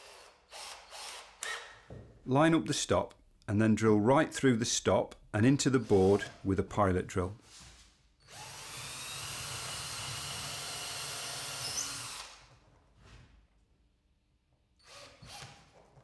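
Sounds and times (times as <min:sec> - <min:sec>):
cordless drill boring into wood: 0:00.0 - 0:01.7, 0:08.2 - 0:12.5, 0:14.8 - 0:15.6.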